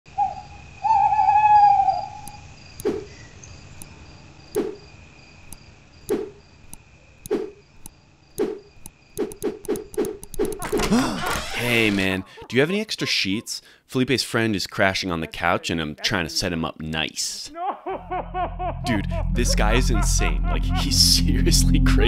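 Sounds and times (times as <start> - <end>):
crickets chirping: 0.1 - 22.0.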